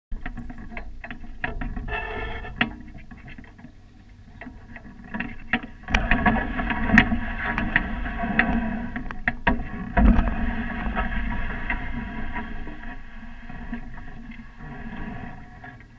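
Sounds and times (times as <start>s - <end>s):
rigging and hull clinks and knocks: 0.1s - 15.9s
low wind rumble: 3.9s - 15.9s.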